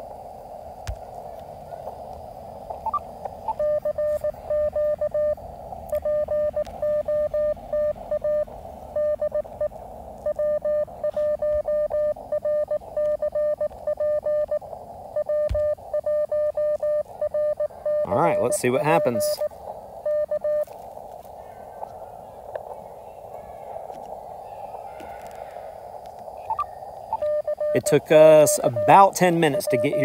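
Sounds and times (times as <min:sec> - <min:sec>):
radio receiver hiss: 0:00.0 - 0:30.0
morse code beeps: 0:02.7 - 0:20.8, 0:26.4 - 0:30.0.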